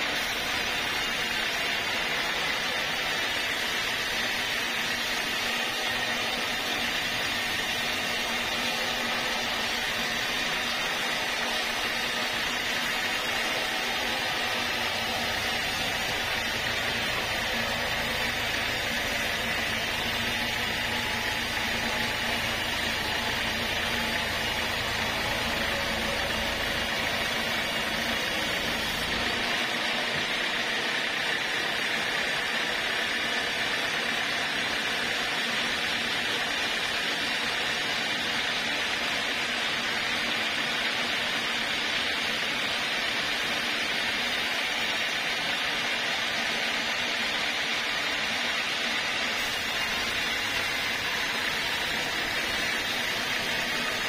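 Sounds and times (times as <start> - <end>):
saw blade whining through log: 0.0 - 54.0
low machine rumble: 13.7 - 29.5.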